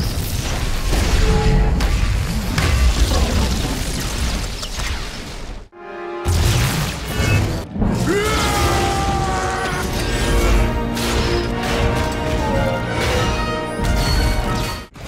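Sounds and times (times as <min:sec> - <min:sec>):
dramatic orchestral music: 0:05.7 - 0:15.0.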